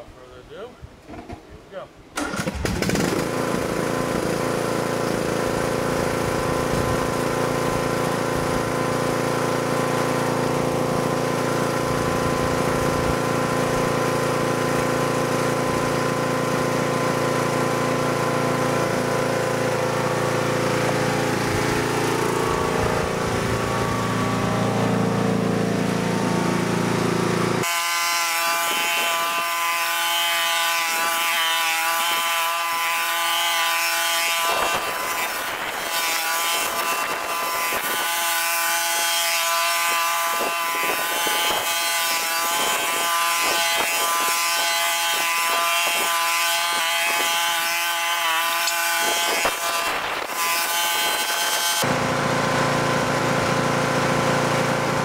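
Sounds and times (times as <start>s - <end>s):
riding mower engine running: 2.2s - 27.7s, 51.8s - 55.0s.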